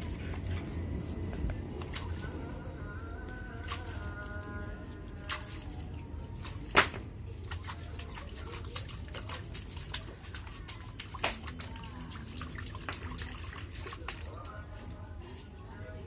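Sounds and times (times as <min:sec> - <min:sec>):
steady low hum: 0:00.0 - 0:16.0
hands splashing water: 0:01.5 - 0:02.5, 0:03.4 - 0:14.7.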